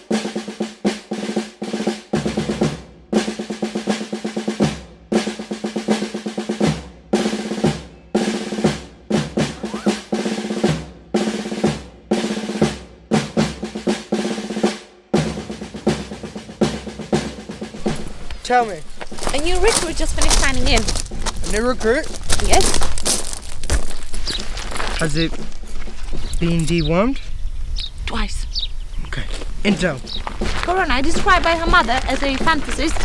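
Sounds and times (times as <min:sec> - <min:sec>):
snare drum rolls: 0:00.0 - 0:18.7.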